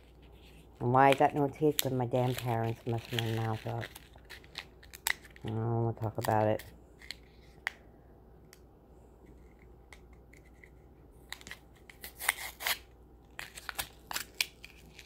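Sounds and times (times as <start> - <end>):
plastic wrapper crinkling and tearing: 0.0 - 7.6, 11.2 - 15.0.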